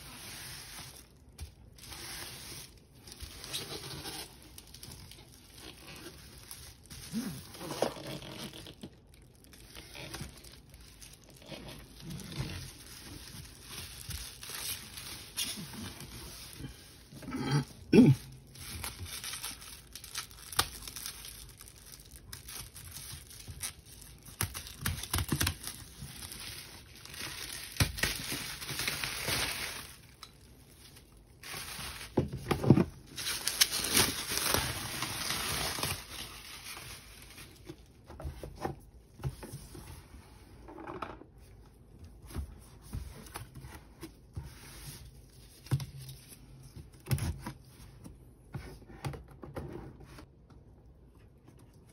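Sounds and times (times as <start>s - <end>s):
packaging tearing and rustling: 0.0s - 17.2s, 18.2s - 38.0s.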